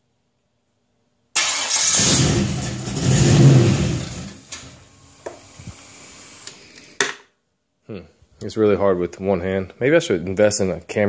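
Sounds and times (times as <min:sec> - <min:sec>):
car engine starting and revving: 0:01.4 - 0:04.9.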